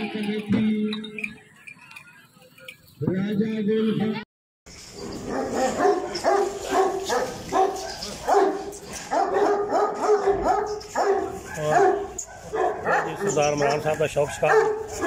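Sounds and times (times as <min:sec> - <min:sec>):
dog barking: 0:05.2 - 0:15.0.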